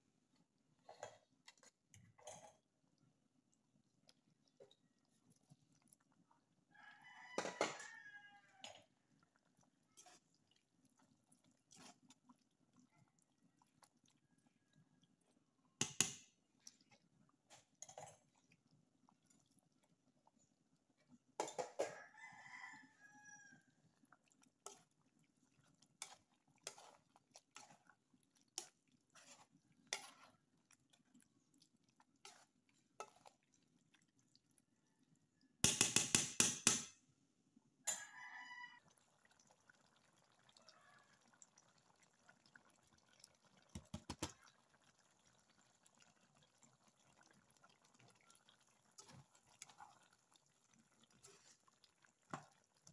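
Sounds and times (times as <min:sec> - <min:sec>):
rooster crowing: 0:06.8 - 0:08.8, 0:21.8 - 0:23.7, 0:37.9 - 0:38.9.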